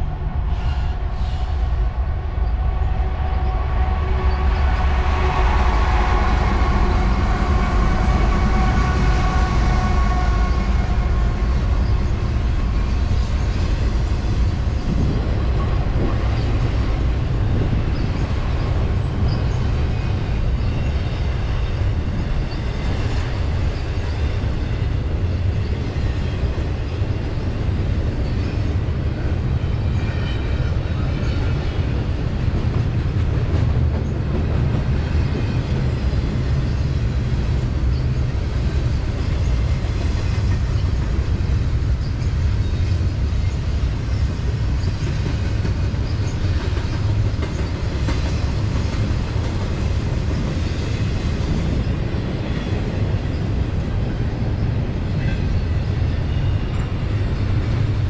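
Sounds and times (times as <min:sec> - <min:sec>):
diesel locomotive engines whining: 0:00.0 - 0:58.0
train wheels rumbling on rails: 0:00.0 - 0:58.0.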